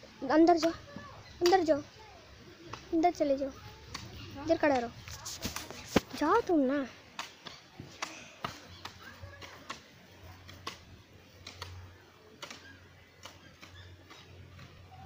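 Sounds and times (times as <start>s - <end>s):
faint voices: 0.0s - 15.0s
hoes chopping into soil: 7.2s - 11.8s, 12.4s - 15.0s.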